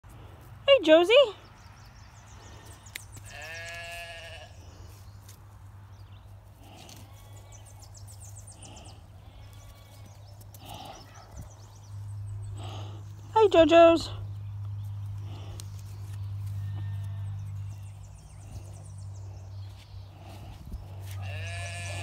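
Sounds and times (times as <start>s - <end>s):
lamb bleating: 3.2s - 4.6s, 9.2s - 10.0s, 16.6s - 17.7s, 21.0s - 22.0s.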